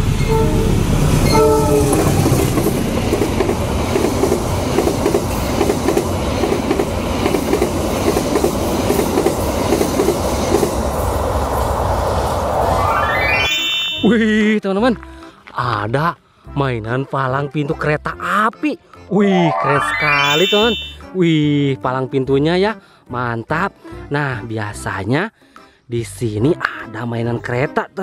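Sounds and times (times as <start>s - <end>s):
train rumbling past: 0.0s - 13.0s
locomotive horn blasts: 0.2s - 2.0s.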